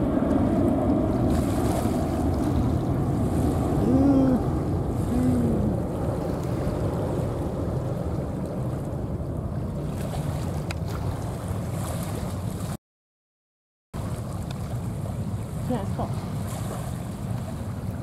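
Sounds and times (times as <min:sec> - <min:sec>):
jet engines rumbling overhead: 0:00.0 - 0:10.0.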